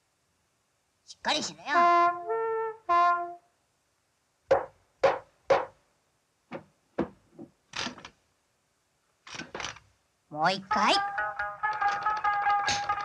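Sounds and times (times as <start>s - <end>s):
sharp wooden knocks: 4.5s - 5.8s, 6.5s - 8.1s.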